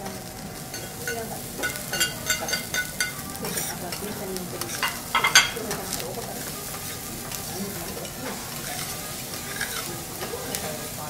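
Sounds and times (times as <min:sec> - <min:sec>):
food sizzling on griddle: 0:00.0 - 0:11.0
spatula scraping metal plate: 0:08.1 - 0:10.3.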